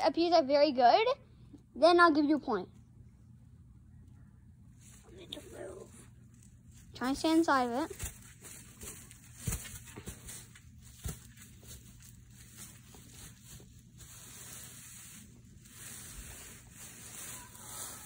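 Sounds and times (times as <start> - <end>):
dry leaves rustling and crunching: 6.0 - 18.0.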